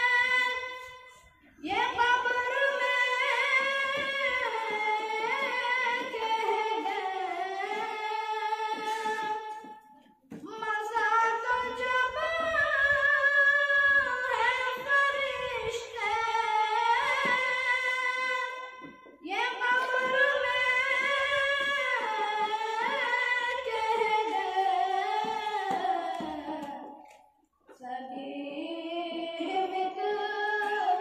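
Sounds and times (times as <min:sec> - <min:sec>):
boy singing unaccompanied: 0:01.6 - 0:09.6, 0:10.4 - 0:26.8.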